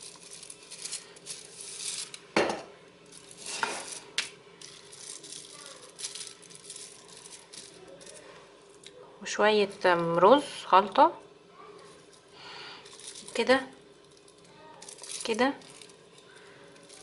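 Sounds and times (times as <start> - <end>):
plastic bag crinkling: 3.1 - 8.4, 11.9 - 17.0.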